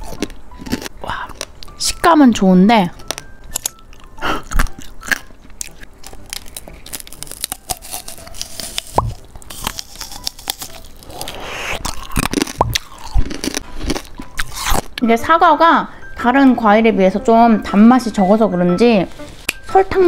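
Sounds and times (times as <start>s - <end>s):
crunchy biting and chewing: 0.0s - 1.8s, 3.0s - 15.0s.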